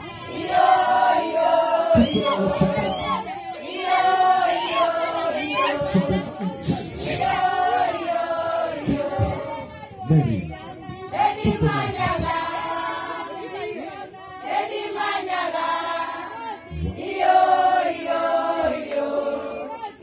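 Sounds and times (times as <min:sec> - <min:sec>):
women singing in chorus: 0:00.0 - 0:20.0.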